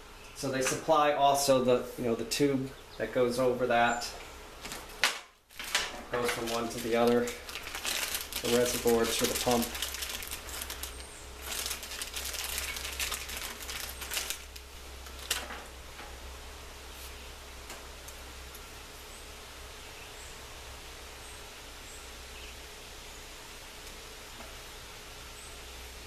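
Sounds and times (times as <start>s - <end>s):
low background hiss: 0.0s - 26.0s
plastic packaging crinkling: 4.6s - 15.8s.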